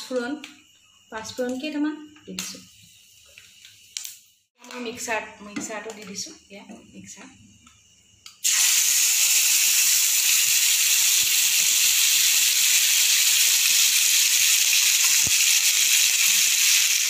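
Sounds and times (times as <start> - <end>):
paste sizzling in hot oil: 8.4 - 17.0.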